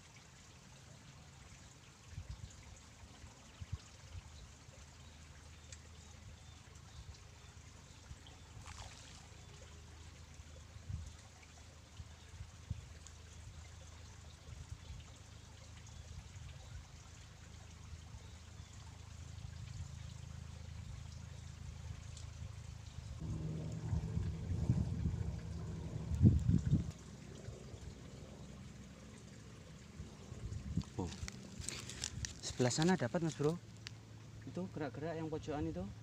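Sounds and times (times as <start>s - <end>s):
soft watery hiss: 0.0s - 36.0s
low rumble: 22.8s - 32.7s.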